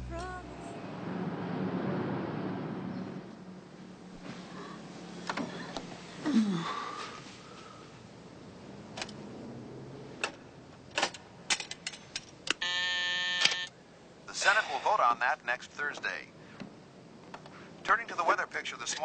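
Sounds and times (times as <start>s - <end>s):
harsh electronic buzz: 12.6s - 13.7s.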